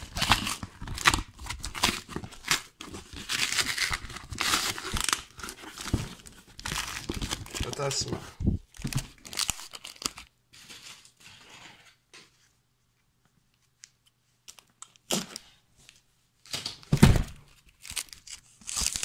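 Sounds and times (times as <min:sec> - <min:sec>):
packing tape ripping off cardboard: 0:00.0 - 0:07.9, 0:17.7 - 0:19.0.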